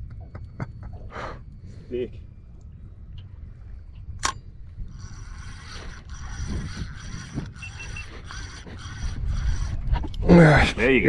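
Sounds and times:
fishing reel whirring: 4.2 - 10.0.

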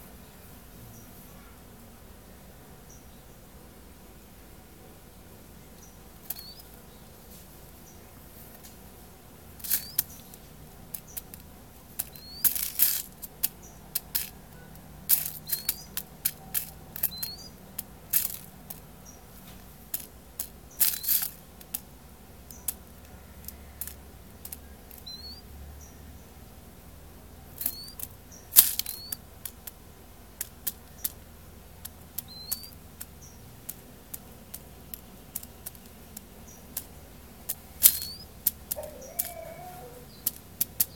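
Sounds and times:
bird bill tapping on paper: 9.6 - 21.9, 27.6 - 40.9.

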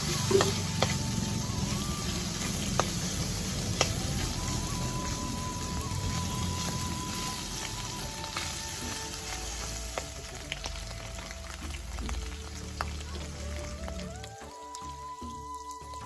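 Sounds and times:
metal spatula turning meat: 0.0 - 10.1
meat sizzling in a pan: 0.0 - 16.0.

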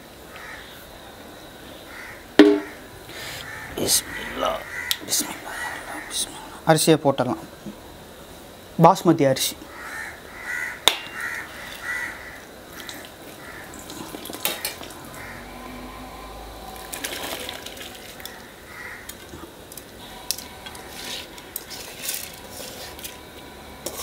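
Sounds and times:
water boiling and bubbling: 9.7 - 24.0.

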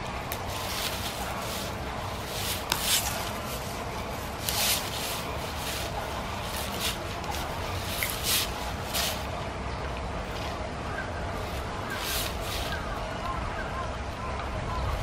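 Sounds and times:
bamboo branches rustling: 0.0 - 9.6, 11.2 - 13.4
bamboo stalks crunching: 0.2 - 9.3, 11.4 - 13.0.

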